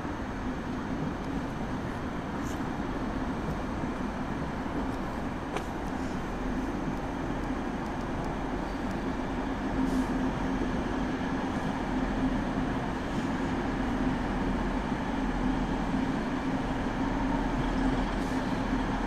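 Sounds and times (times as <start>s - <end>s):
train rumbling past: 0.0s - 19.0s.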